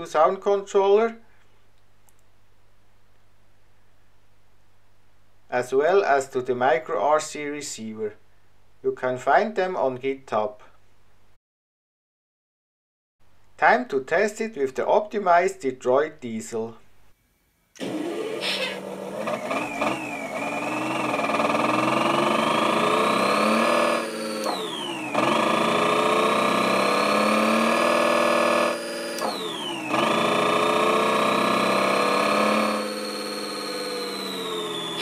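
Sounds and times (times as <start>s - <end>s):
simulated diesel engine revving: 17.8s - 35.0s.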